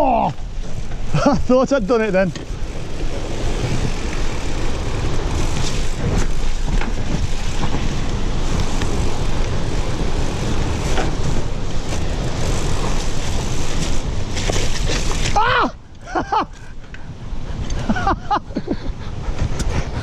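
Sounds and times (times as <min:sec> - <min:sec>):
tyre rumble: 0:00.0 - 0:15.8
bike rattling over roots and rocks: 0:00.0 - 0:18.3
wind rushing over microphone: 0:00.0 - 0:20.0.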